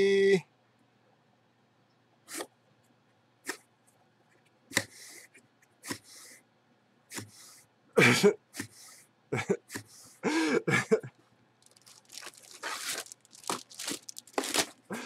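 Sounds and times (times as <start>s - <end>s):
cardboard rustle: 11.6s - 14.9s.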